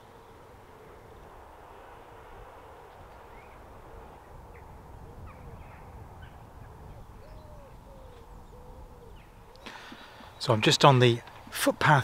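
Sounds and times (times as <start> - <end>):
bird hooting or cooing: 0.0 - 1.4, 3.2 - 10.3
small birds chirping: 3.0 - 11.6.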